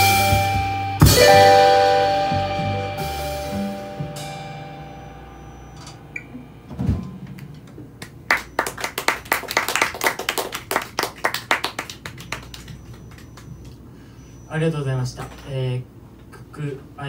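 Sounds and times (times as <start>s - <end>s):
jazz guitar and bass chord: 0.0s - 8.0s
audience clapping: 7.4s - 13.9s.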